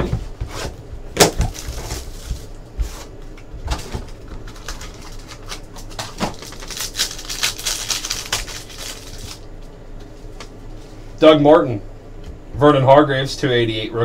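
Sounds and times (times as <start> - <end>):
foil wrapper crinkling: 1.2 - 3.0, 3.8 - 9.6.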